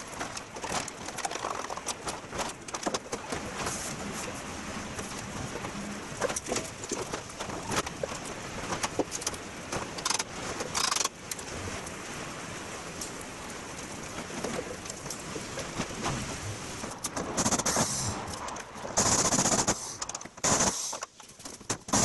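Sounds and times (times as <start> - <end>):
scraping hiss: 17.4 - 18.4, 19.0 - 21.3.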